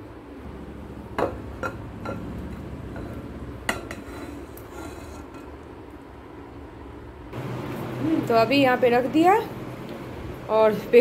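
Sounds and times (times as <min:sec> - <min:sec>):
metal pan scraping glass bowl: 0:02.9 - 0:05.5.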